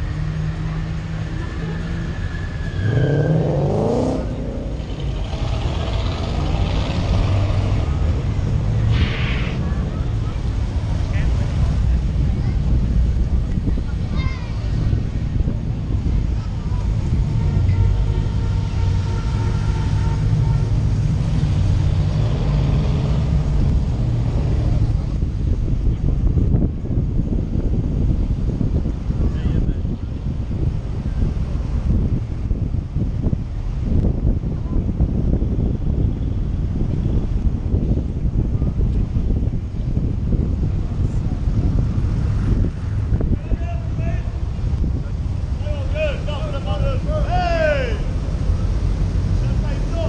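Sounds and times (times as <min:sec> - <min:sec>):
car engine revving: 0:00.0 - 0:09.8, 0:17.0 - 0:25.2
car engines rumbling: 0:00.0 - 0:50.0.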